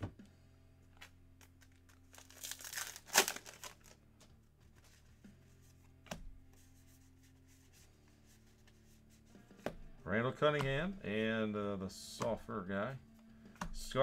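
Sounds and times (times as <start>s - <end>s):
foil wrapper tearing and crinkling: 1.4s - 4.0s.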